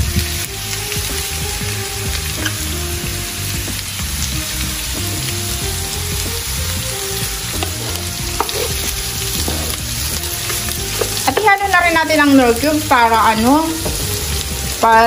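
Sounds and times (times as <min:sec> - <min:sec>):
food sizzling in a wok: 0:00.0 - 0:15.0
spatula tapping: 0:07.2 - 0:11.5.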